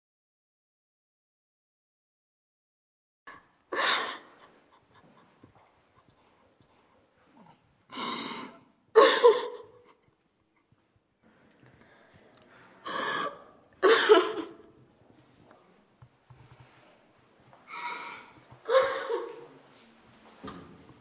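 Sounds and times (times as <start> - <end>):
woman crying and sobbing: 9.0 - 10.1, 18.7 - 19.4.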